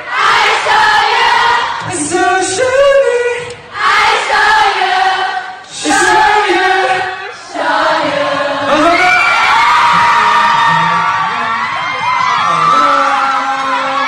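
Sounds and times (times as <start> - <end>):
voices singing together: 0.0 - 9.3.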